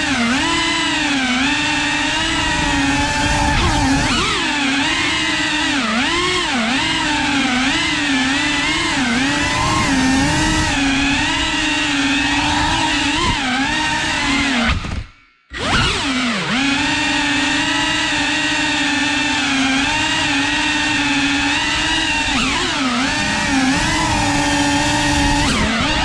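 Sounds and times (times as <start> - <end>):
drone motors whining: 0.0 - 26.0.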